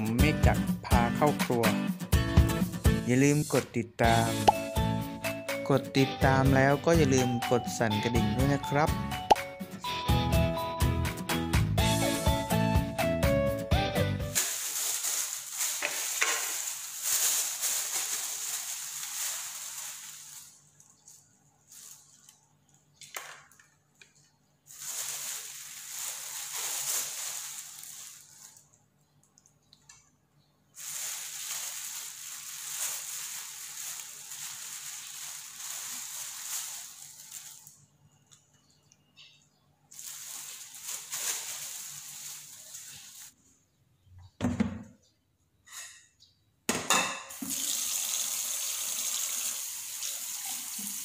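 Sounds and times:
plastic bag rustling: 0:14.4 - 0:22.6, 0:24.7 - 0:28.8, 0:30.8 - 0:37.9, 0:39.9 - 0:43.4.

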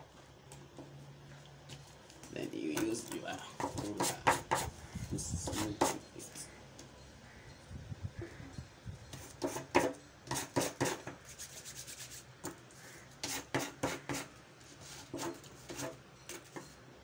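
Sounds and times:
ruler scraping paper: 0:13.2 - 0:16.8.

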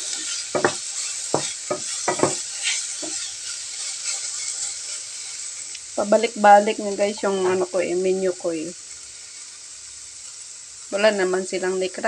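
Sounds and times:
wooden spatula scraping pan: 0:00.0 - 0:05.0
mushrooms sizzling in frying pan: 0:00.0 - 0:12.0.

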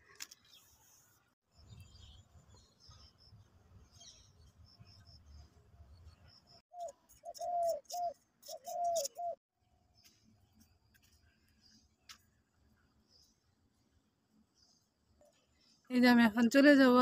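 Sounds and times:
small birds chirping: 0:00.3 - 0:16.3
dove cooing: 0:06.8 - 0:09.4.

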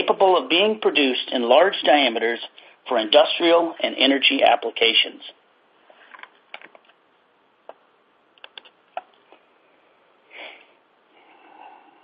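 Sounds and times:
person breathing or sniffing: 0:10.3 - 0:12.0.

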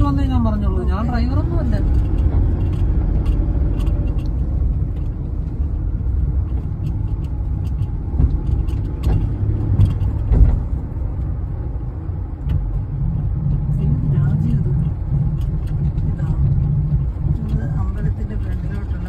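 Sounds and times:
car engine and road rumble: 0:00.0 - 0:19.0
knocks and rattles: 0:01.6 - 0:11.3.

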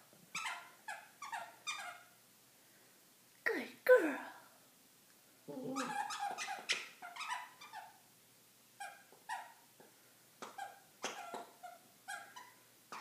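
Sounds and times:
squeaky toy squeaking: 0:00.3 - 0:02.2, 0:05.8 - 0:08.0, 0:08.8 - 0:09.6, 0:10.4 - 0:13.0.

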